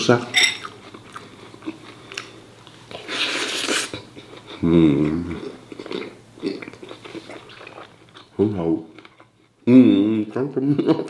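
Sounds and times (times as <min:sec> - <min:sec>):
short hummed vocal sound: 0:04.6 - 0:05.6.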